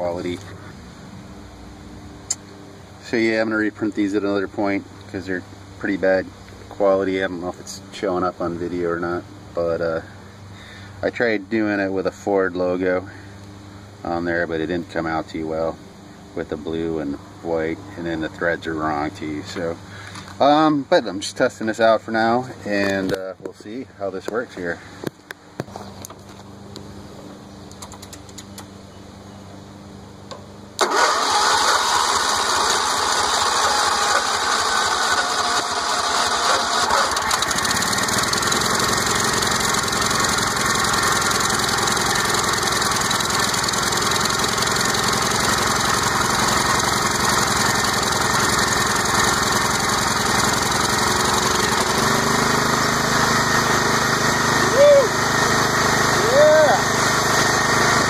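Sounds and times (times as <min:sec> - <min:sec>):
tractor engine running: 0:30.3 - 0:58.0
engine starter cranking: 0:30.8 - 0:52.2.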